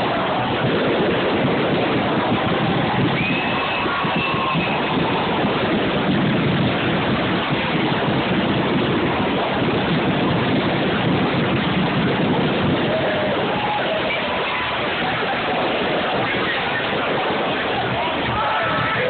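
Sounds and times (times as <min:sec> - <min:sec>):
fireworks bangs and crackling: 0:00.0 - 0:19.0
faint firework whistles: 0:03.0 - 0:05.3.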